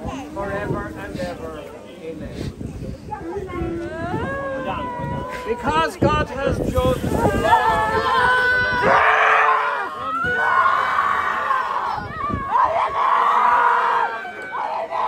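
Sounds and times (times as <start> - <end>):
mourners wailing: 7.1 - 15.0
long drawn-out cries: 7.3 - 15.0.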